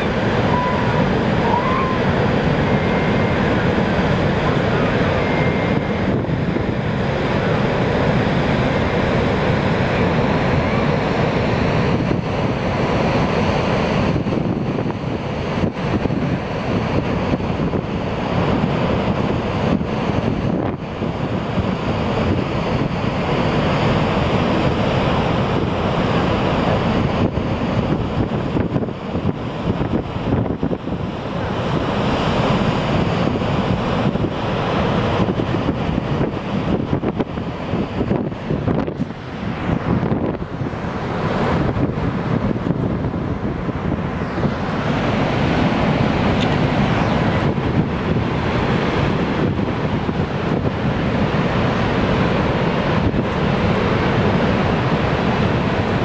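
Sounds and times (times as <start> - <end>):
waterfall rushing: 0.0 - 14.2, 37.4 - 56.0
wind buffeting microphone: 0.0 - 56.0.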